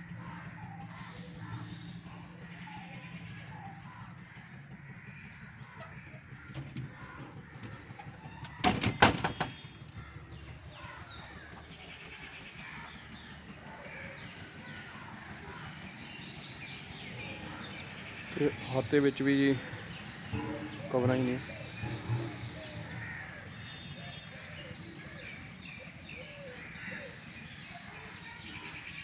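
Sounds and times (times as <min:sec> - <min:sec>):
birds calling faintly: 0:00.0 - 0:29.0
metal door latch clicking: 0:06.5 - 0:06.9, 0:08.4 - 0:09.6.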